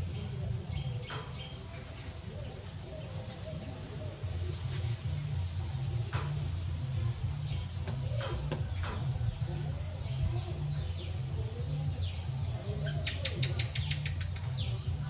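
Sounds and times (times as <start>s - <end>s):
birds chirping: 0.0s - 15.0s
steady low hum: 0.0s - 15.0s.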